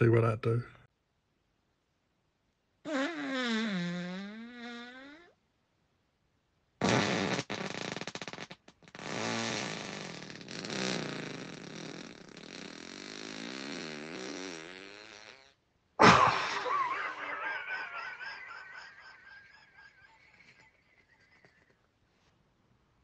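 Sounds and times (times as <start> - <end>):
person farting: 2.9 - 5.4, 6.8 - 21.8.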